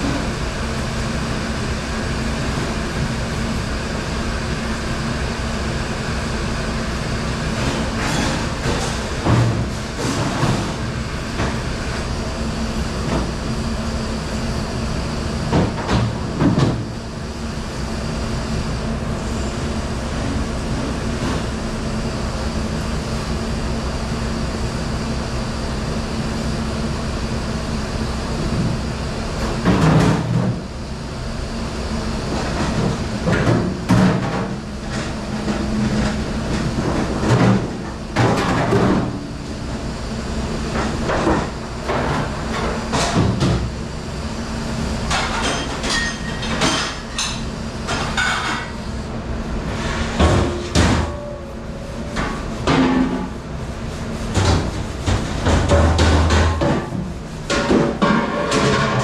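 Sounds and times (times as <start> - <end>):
dishwasher machinery humming: 0.0 - 59.0
dishes clattering and knocking: 45.1 - 48.8, 54.4 - 59.0.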